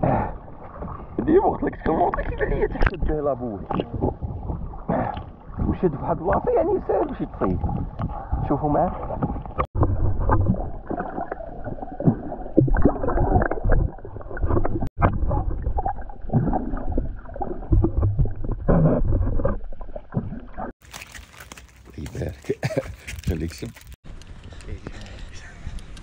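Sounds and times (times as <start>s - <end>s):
water sloshing and gurgling: 0.0s - 25.2s.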